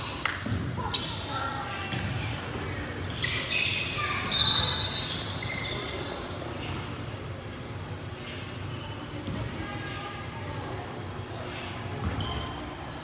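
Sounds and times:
high-pitched shoe squeal: 0:03.1 - 0:06.7, 0:11.8 - 0:12.8.

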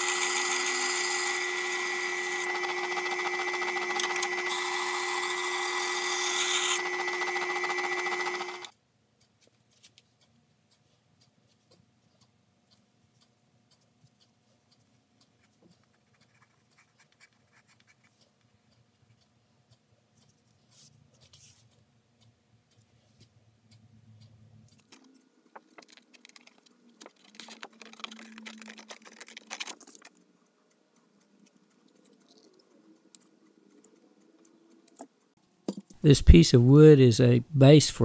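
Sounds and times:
pencil scratching: 0:15.4 - 0:18.2, 0:25.8 - 0:30.2
scissors cutting cardboard: 0:24.8 - 0:30.2
paper rustling: 0:24.9 - 0:30.2.

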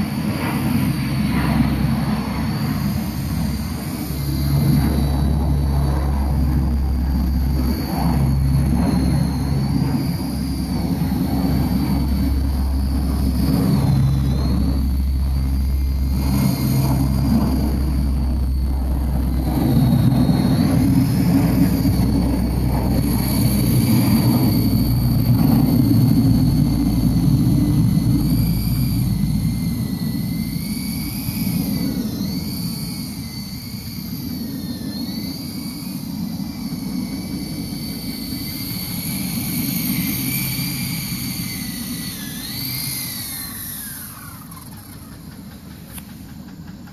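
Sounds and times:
low rotor rumble: 0:00.0 - 0:46.9
model helicopter motor whine: 0:00.0 - 0:46.9.

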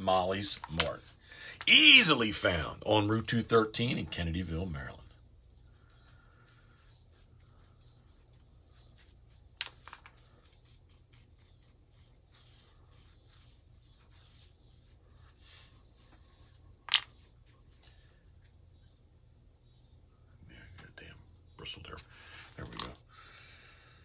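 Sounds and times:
paintbrush scratching: 0:04.2 - 0:18.6.

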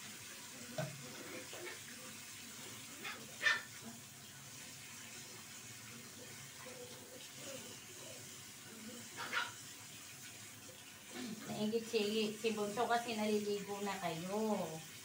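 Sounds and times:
water running from sink tap: 0:00.0 - 0:15.0.

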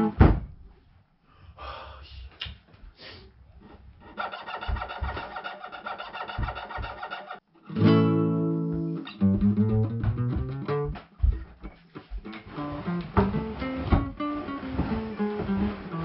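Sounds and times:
guitar music: 0:07.6 - 0:11.0, 0:11.6 - 0:16.0.

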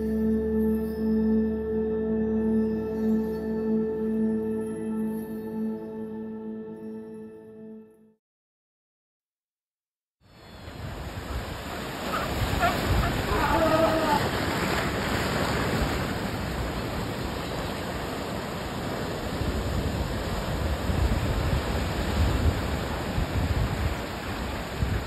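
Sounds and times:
ocean surf breaking around rocks: 0:10.5 - 0:25.0
wind buffeting microphone: 0:10.6 - 0:25.0.

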